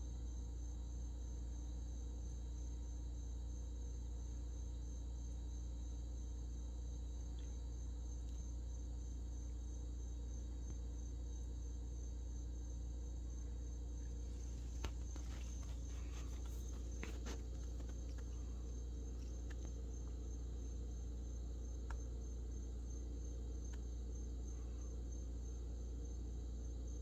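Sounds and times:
cricket chirping: 0.0s - 27.0s
low steady hum: 0.0s - 27.0s
faint clicks and rustles: 14.0s - 20.5s.

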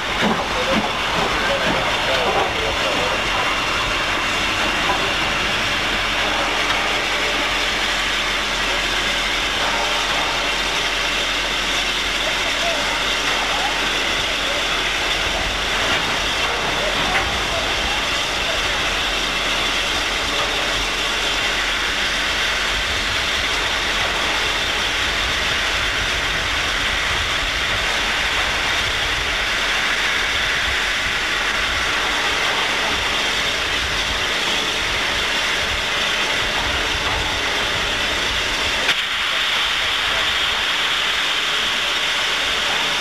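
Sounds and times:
steam locomotive hissing: 0.0s - 43.0s.

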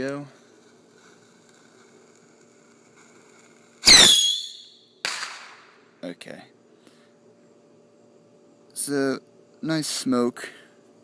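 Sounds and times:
rocket shrill whistle: 3.8s - 5.3s.

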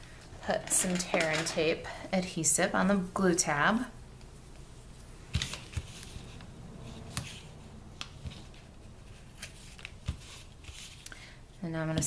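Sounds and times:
faint paper rustling: 4.6s - 11.1s.

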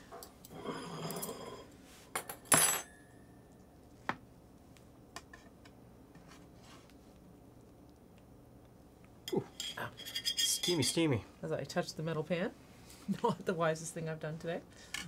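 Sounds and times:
cutlery scraping metal tray: 0.5s - 1.7s, 9.5s - 11.0s.

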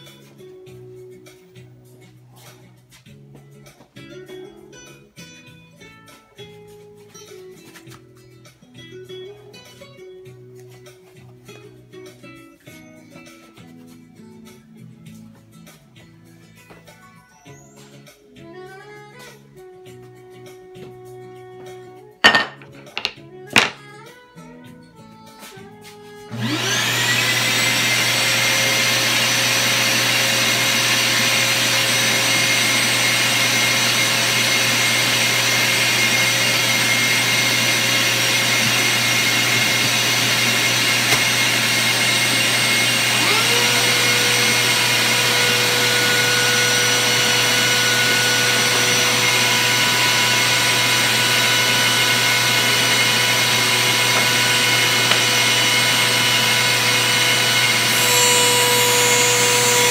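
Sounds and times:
dust-collection vacuum running: 26.3s - 59.9s
router motor whine: 26.3s - 59.9s.

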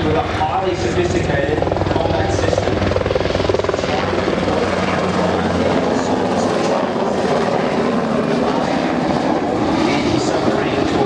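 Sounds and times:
helicopter rotor and engine: 0.0s - 11.0s.

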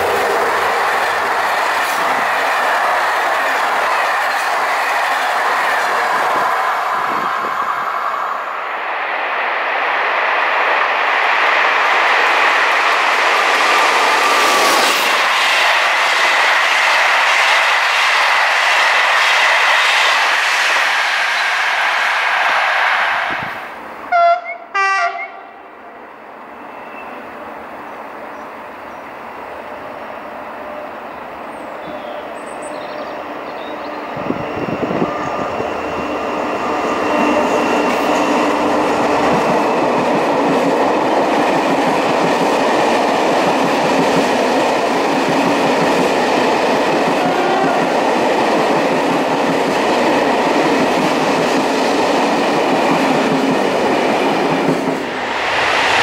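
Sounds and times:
train passing on rails: 0.0s - 56.0s
train horn blasts: 24.1s - 25.6s, 47.2s - 47.9s.

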